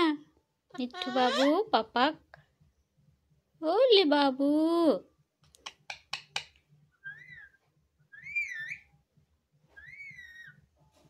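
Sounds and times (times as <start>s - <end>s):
parrot clicking: 5.4s - 6.6s
parrot whistling: 7.0s - 8.9s, 9.8s - 10.6s.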